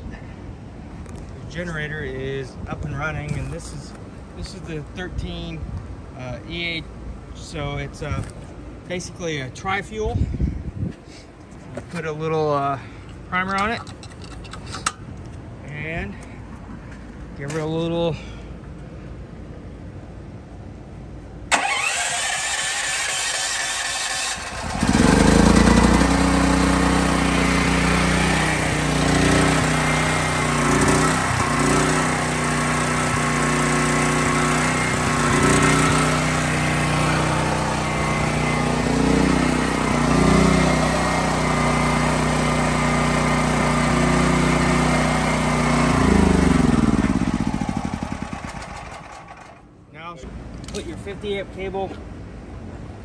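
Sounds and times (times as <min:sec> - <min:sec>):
electric starter cranking: 0:21.5 - 0:49.7
generator engine running: 0:21.5 - 0:49.8.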